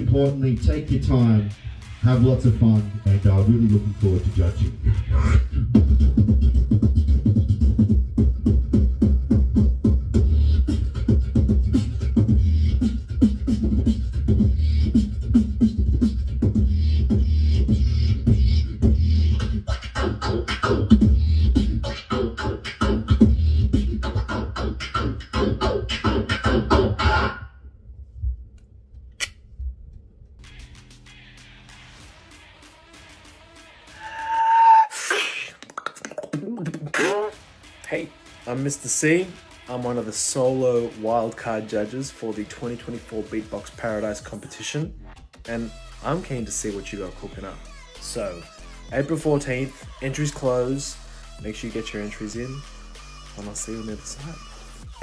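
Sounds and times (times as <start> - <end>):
person beatboxing: 0.0 - 27.3, 33.9 - 55.0.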